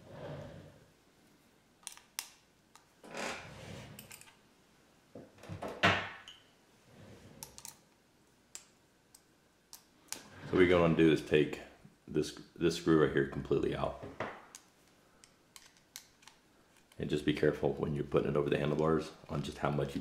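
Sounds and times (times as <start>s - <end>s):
sharp clicks of small parts: 1.8s - 2.9s, 14.5s - 17.0s.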